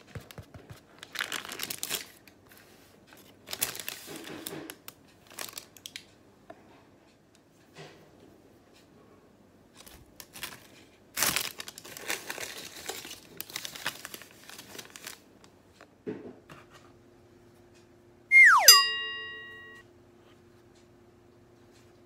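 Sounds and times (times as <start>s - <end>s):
cloth and paper rustling: 9.8s - 15.2s.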